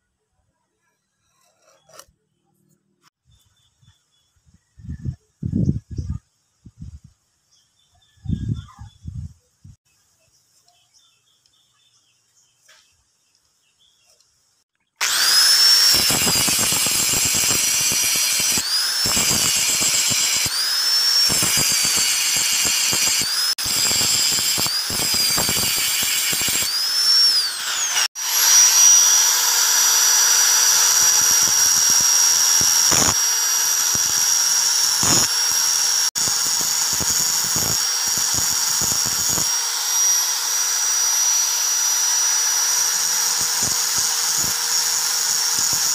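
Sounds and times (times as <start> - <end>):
angle grinder grinding steel: 1.2 - 2.1, 15.0 - 45.9.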